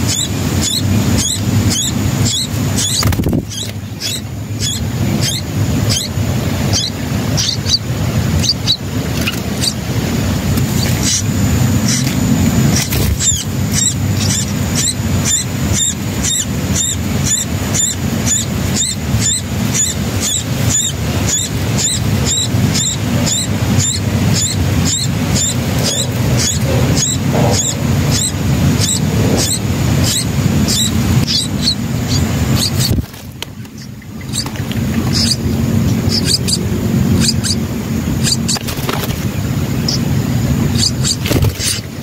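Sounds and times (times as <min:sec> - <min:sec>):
nestlings begging with high cheeps: 0:00.0 - 0:42.0
steady low rumble: 0:00.0 - 0:42.0.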